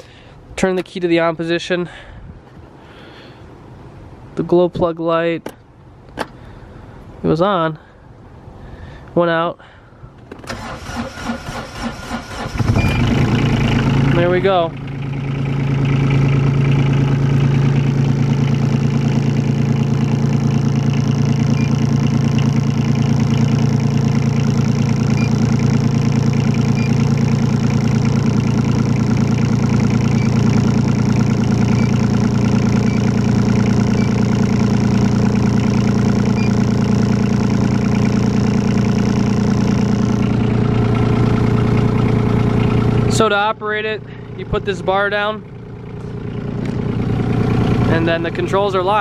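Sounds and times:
diesel engine idling: 10.5s - 49.0s.

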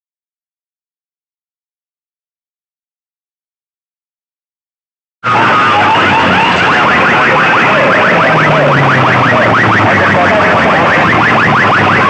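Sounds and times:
loud overloaded electronic alarm: 5.2s - 12.0s.

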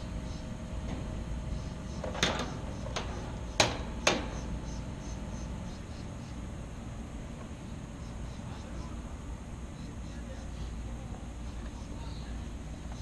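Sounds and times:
steady low hum: 0.0s - 13.0s
sharp knocks and clicks: 2.0s - 4.4s.

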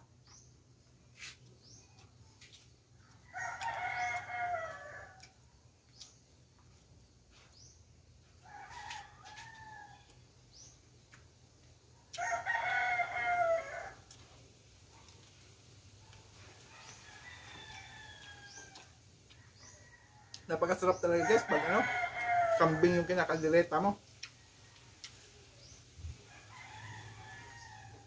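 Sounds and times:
rooster crowing: 3.0s - 5.3s, 8.4s - 10.2s, 12.2s - 14.1s, 16.6s - 23.4s, 26.2s - 28.0s.

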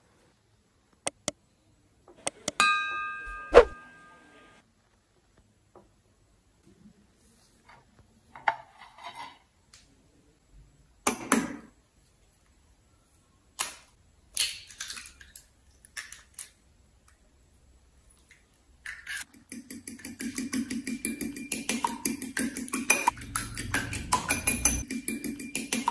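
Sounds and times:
egg cracking on ceramic bowl: 13.6s - 16.6s
fork beating egg in bowl: 18.9s - 25.9s.

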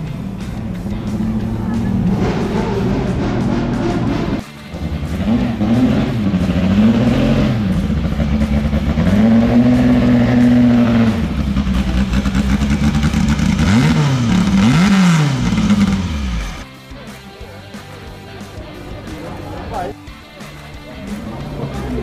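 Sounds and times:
racing car engine revving: 0.0s - 16.6s.

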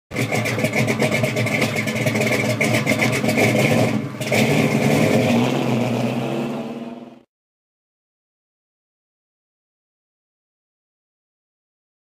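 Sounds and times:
car engine running: 0.1s - 7.2s.

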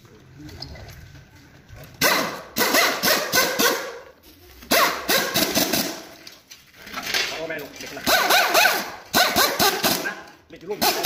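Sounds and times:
pneumatic impact wrench rattling: 2.0s - 6.2s, 8.0s - 11.0s.

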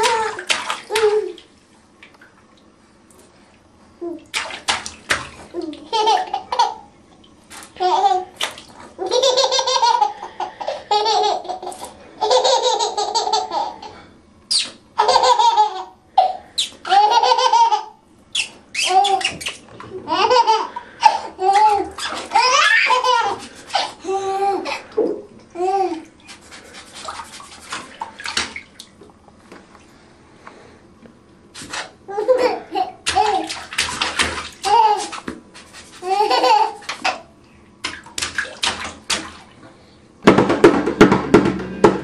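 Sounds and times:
water sloshing in a bathtub: 0.0s - 12.2s, 18.3s - 30.6s, 31.5s - 41.1s
baby laughing: 5.5s - 6.9s, 7.8s - 8.4s, 9.0s - 13.9s, 14.5s - 26.1s, 32.1s - 33.6s, 34.6s - 35.2s, 36.0s - 37.3s.

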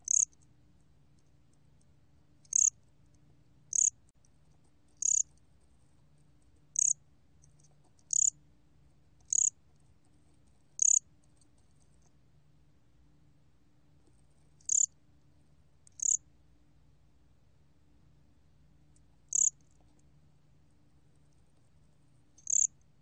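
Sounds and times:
cricket chirping: 0.0s - 0.4s, 2.4s - 2.8s, 3.7s - 4.0s, 5.0s - 5.4s, 6.7s - 7.0s, 8.0s - 8.4s, 9.2s - 9.6s, 10.8s - 11.0s, 14.6s - 15.0s, 15.9s - 16.2s, 19.3s - 19.8s, 22.4s - 22.8s.

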